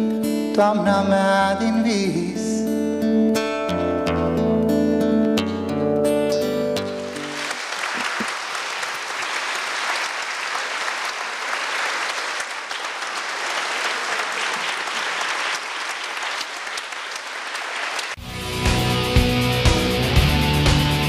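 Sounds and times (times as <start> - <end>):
audience applauding: 7.1 - 18.2.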